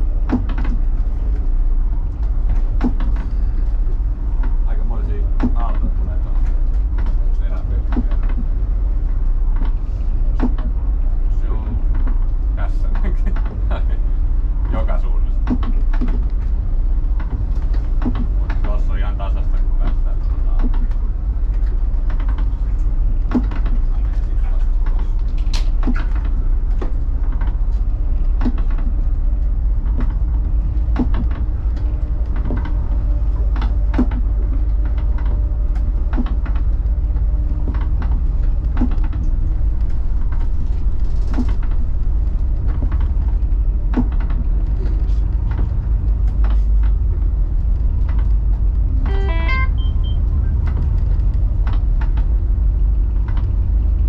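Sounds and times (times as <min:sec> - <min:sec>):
boat engine rumble: 0:00.0 - 0:54.0
sharp knocks and rattles: 0:00.2 - 0:14.0, 0:14.6 - 0:54.0
beeps climbing in pitch: 0:49.1 - 0:50.2.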